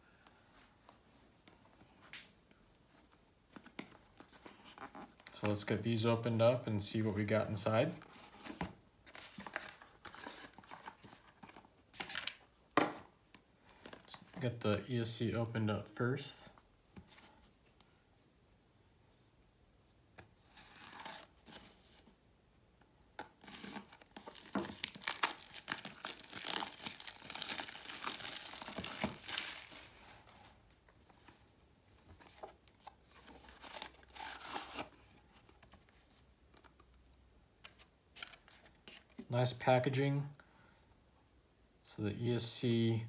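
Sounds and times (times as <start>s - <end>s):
packaging tearing and crinkling: 23.4s - 30.2s.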